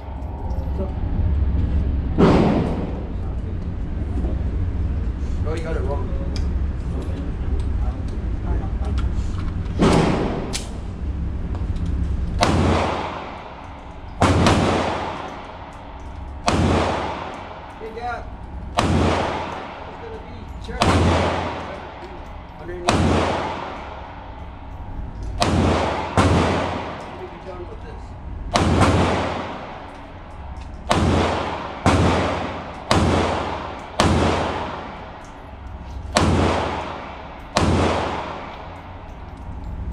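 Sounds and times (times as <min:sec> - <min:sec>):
steady low hum: 0:00.0 - 0:39.9
pistol shots echoing: 0:12.4 - 0:27.8, 0:28.5 - 0:39.3.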